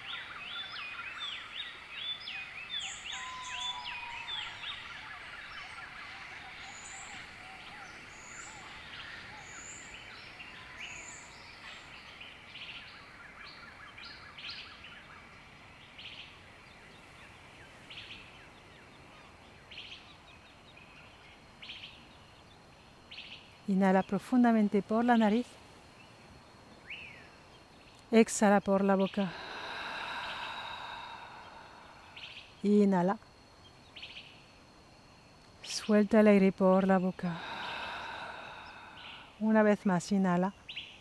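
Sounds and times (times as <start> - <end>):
birds chirping and calling: 0.0 - 12.8.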